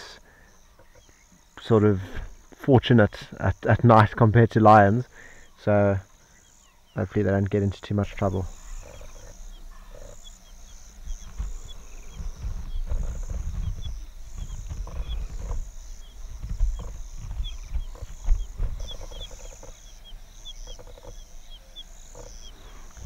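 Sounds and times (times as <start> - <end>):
insects trilling: 0.0 - 23.0
wild dogs growling: 8.5 - 18.1.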